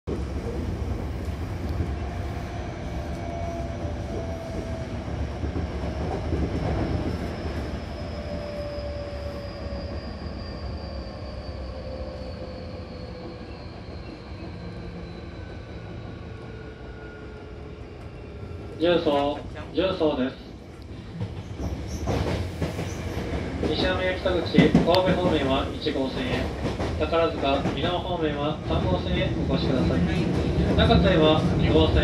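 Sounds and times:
train wheel rumble: 0.1s - 32.0s
train whine falling in pitch: 1.6s - 18.6s.

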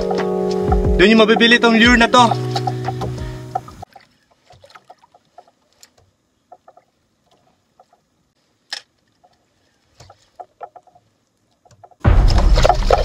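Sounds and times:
faint ticks and knocks: 2.3s - 12.0s.

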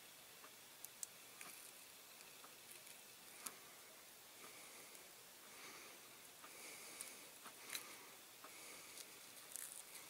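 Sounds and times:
tape peeling ticks and crackles: 0.4s - 3.6s, 6.4s - 10.0s.

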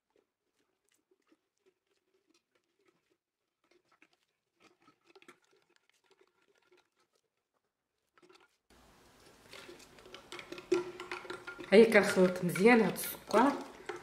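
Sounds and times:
wooden spoon scraping glass jar: 0.0s - 14.0s
faint steady hiss: 8.7s - 10.2s.

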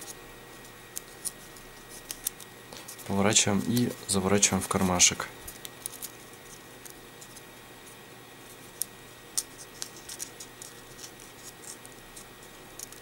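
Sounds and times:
paper crinkling: 0.0s - 13.0s.

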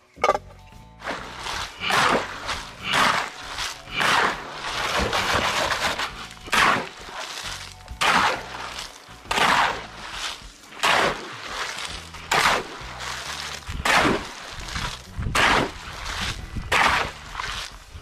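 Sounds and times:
digging tool chopping wet soil: 0.2s - 18.0s.

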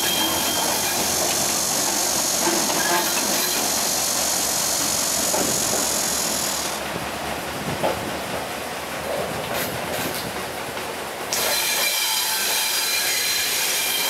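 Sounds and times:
loud steady hiss: 0.0s - 7.6s.

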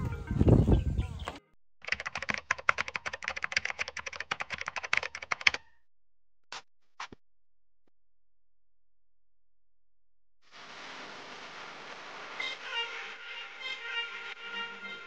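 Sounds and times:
computer keyboard key clicks: 1.8s - 5.6s.

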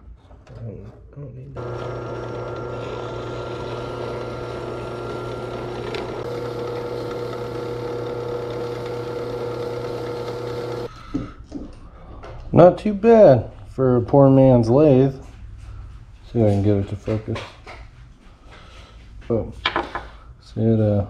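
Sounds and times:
drill press motor humming: 1.6s - 10.9s
file scraping spinning metal: 1.6s - 10.9s.

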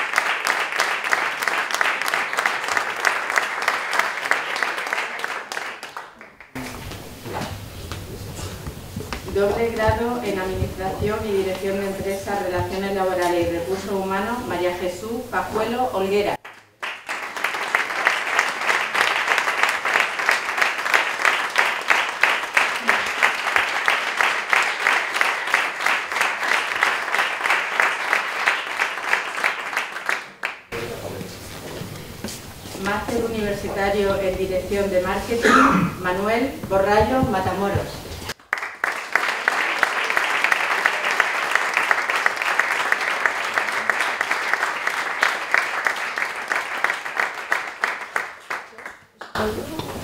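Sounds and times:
crowd applauding: 0.0s - 9.4s, 16.4s - 31.4s, 38.3s - 49.9s.

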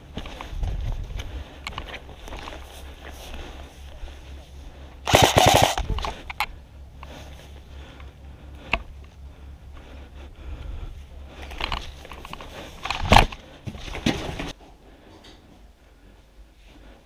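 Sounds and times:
wind rumble on microphone: 0.0s - 1.8s
footsteps on grass and concrete: 0.0s - 4.8s
gear rustling: 5.1s - 6.6s.

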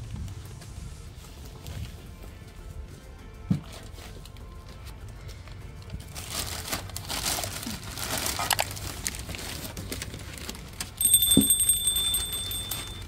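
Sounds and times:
plastic bag crinkling and rustling: 5.8s - 11.2s
high bell-like ding: 11.0s - 13.0s.

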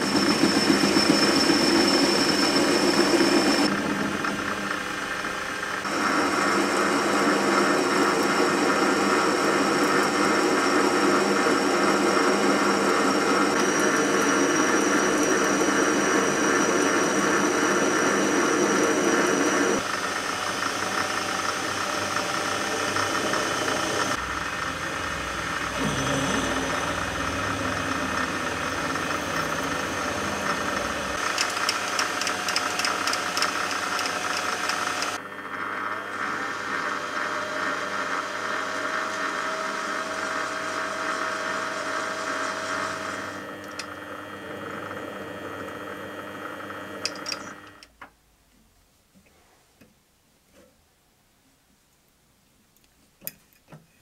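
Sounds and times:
tool cutting metal shaft: 0.0s - 4.4s, 5.8s - 35.2s, 47.0s - 47.9s
drill boring into metal: 0.0s - 35.2s, 35.9s - 45.2s
metal lathe whining: 0.0s - 47.9s.

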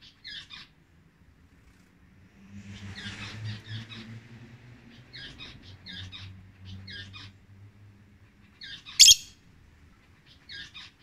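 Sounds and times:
lovebird chirping calls: 8.6s - 9.4s.

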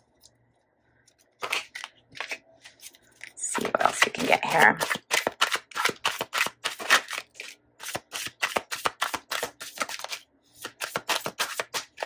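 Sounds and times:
cards being shuffled by hand: 1.4s - 12.0s.

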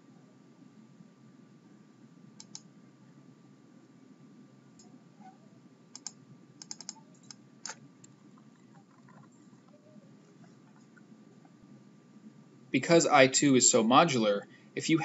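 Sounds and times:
faint steady hiss: 0.0s - 15.0s
computer mouse clicks: 2.4s - 2.7s, 5.9s - 8.2s
keyboard keystrokes: 6.0s - 8.2s.

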